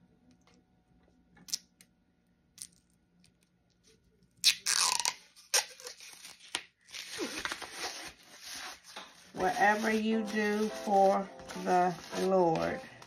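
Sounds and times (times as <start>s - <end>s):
tape crinkling: 2.6s - 13.0s
tape ripping off: 4.4s - 9.0s.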